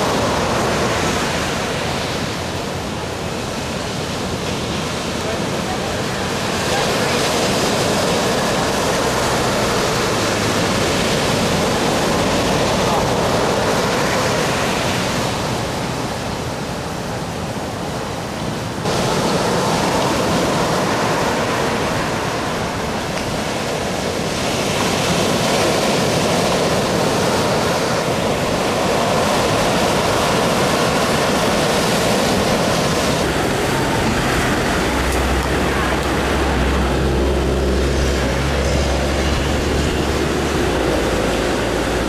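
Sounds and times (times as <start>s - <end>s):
ocean surf breaking: 0.0s - 42.0s.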